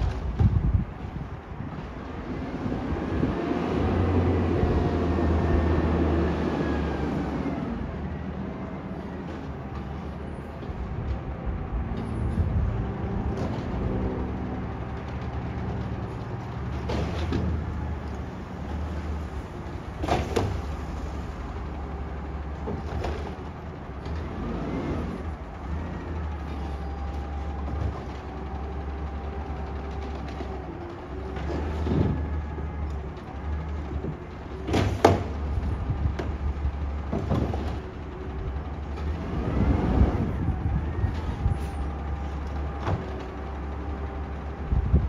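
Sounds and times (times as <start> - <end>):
garbage truck idling: 6.8 - 45.0
clanks and bangs of cart: 15.0 - 17.8, 19.9 - 20.9, 34.0 - 36.4, 37.0 - 38.1.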